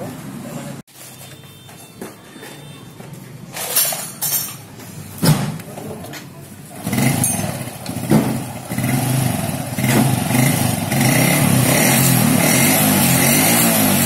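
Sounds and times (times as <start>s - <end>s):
motorcycle engine running: 6.6s - 14.0s.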